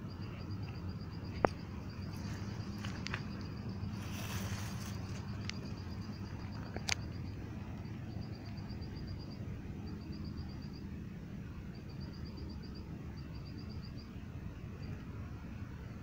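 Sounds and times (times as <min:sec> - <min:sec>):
insect chirping: 0:00.0 - 0:16.0
cord rustling around stick: 0:03.9 - 0:05.6.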